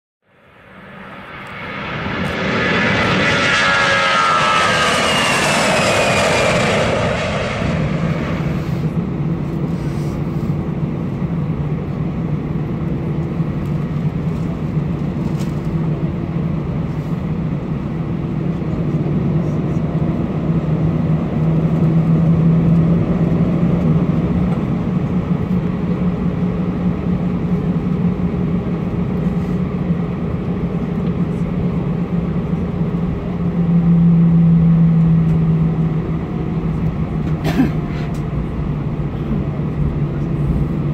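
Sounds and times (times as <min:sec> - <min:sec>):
jet engines humming in cabin: 0:00.2 - 0:40.9
falling whoosh: 0:00.6 - 0:09.0.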